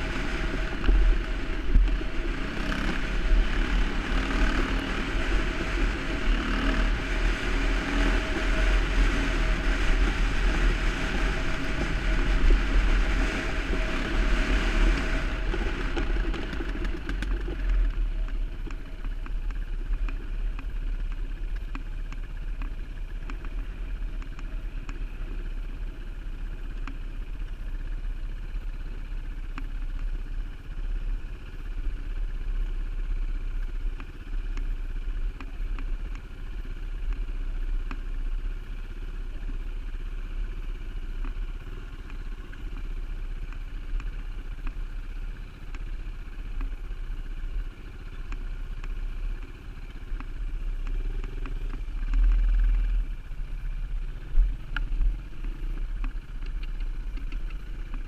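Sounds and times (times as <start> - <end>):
wind rumbling on microphone: 0.0 - 20.5, 49.8 - 58.0
dirt bike engine running: 0.0 - 58.0.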